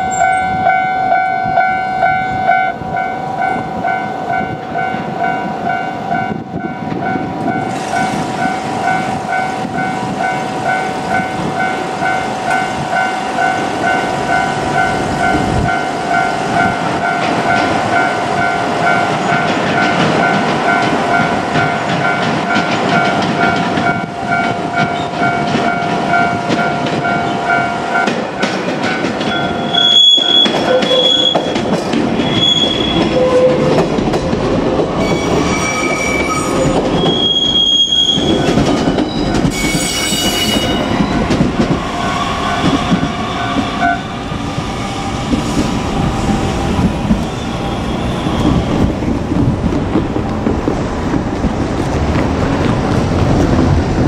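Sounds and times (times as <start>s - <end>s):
crossing warning bell: 0.0s - 33.9s, 35.0s - 44.4s
train running noise: 0.0s - 54.0s
train wheels squealing: 29.2s - 33.7s, 35.0s - 49.1s.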